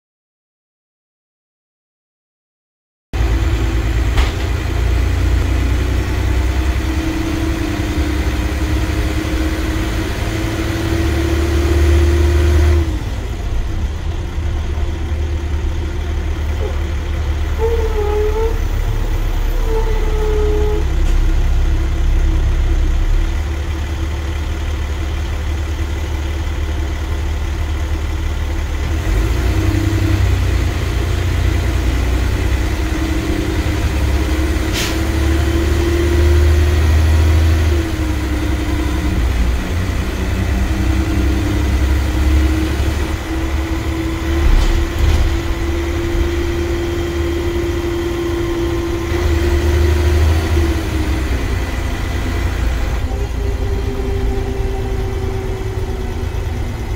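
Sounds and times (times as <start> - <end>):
bus engine whining: 3.2 - 56.9
short squeaks: 17.5 - 21.4.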